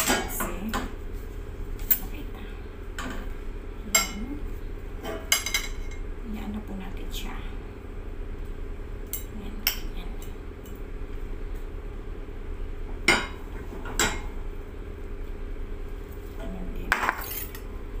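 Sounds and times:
fork scraping ceramic plate: 17.0s - 17.6s.

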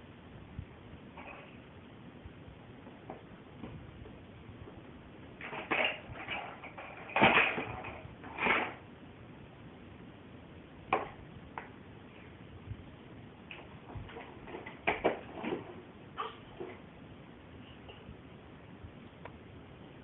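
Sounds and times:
plastic toy truck clattering: 5.4s - 8.8s, 13.6s - 15.8s.

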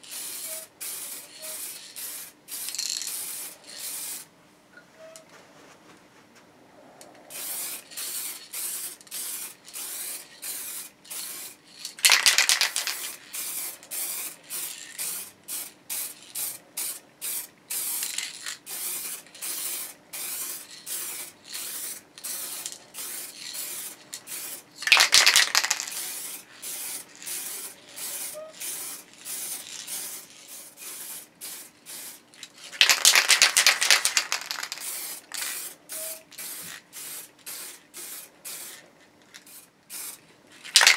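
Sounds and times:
aerosol spray can hissing: 0.1s - 4.2s, 7.3s - 32.2s, 32.8s - 38.8s.

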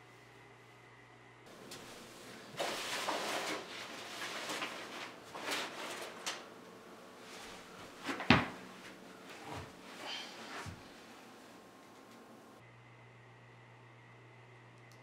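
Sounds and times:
book and papers rustling: 1.5s - 6.6s, 7.2s - 11.1s
book thumping on carpet: 8.1s - 8.6s.

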